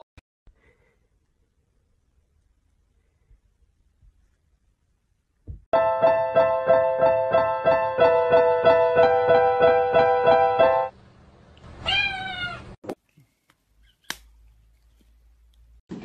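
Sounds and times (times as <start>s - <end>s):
electronic keyboard repeating chord: 5.8s - 10.9s
cat meowing: 11.8s - 12.8s.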